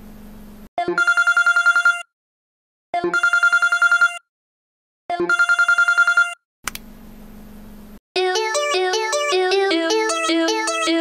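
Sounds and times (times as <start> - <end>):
electronic telephone ringing: 0.9 - 2.1, 3.1 - 4.3, 5.3 - 6.4.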